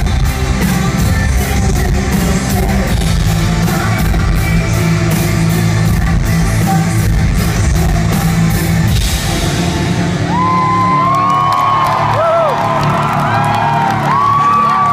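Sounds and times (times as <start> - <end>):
live rock band playing: 0.0 - 14.9
crowd cheering and whooping: 10.0 - 14.9.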